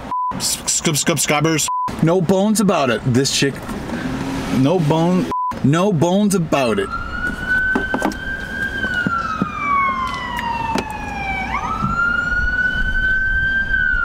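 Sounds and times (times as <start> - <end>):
low traffic rumble: 0.0 - 14.0
ambulance siren wailing: 6.5 - 14.0.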